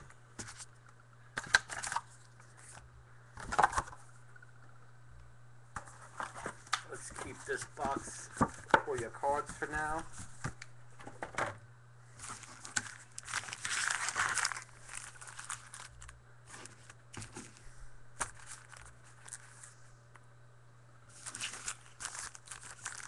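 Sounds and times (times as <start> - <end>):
steady low hum: 0.0 - 23.0
plastic wrapping crinkling and tearing: 1.4 - 2.8, 12.2 - 17.6, 18.2 - 19.8, 21.1 - 23.0.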